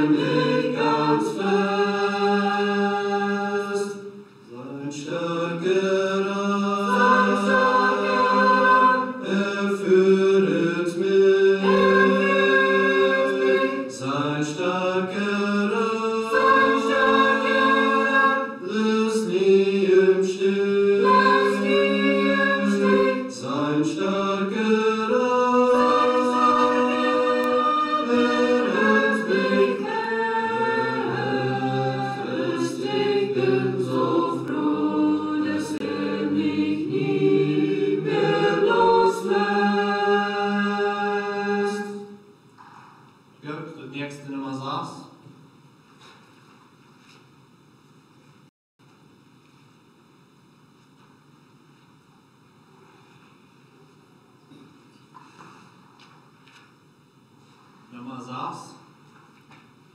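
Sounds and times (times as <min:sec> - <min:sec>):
group singing a hymn a cappella: 0:00.0 - 0:42.3.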